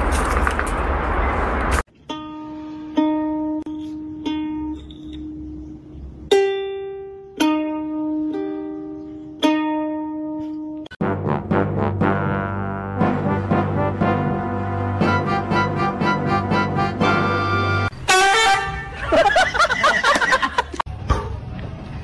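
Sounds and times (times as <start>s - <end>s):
ukulele notes plucked: 1.9s - 11.0s
music: 2.0s - 18.6s.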